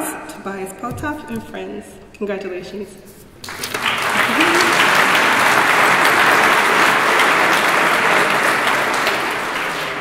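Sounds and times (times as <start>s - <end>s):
crowd applauding: 3.4s - 10.0s.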